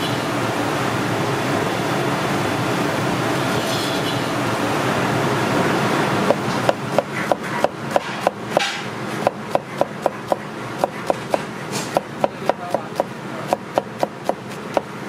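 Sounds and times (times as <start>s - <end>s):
cleaver knocking on cutting board: 12.0s - 14.9s.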